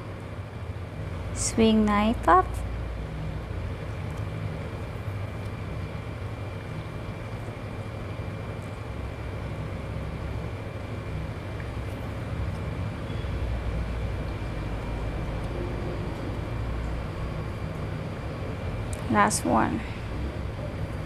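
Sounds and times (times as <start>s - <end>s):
faint high whine: 12.8s - 21.0s.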